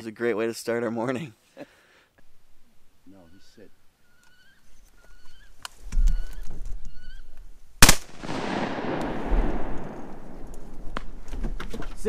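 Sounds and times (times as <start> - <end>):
shotgun blast echoing: 7.8 - 10.7.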